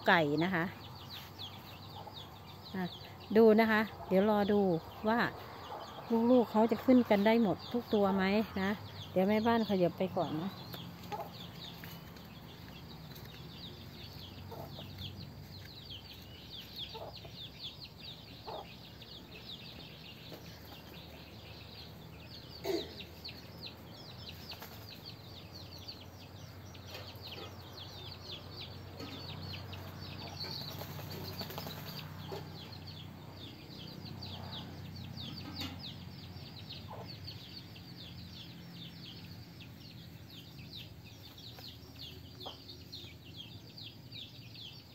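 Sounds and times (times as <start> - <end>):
chicks peeping: 0.1 - 44.9.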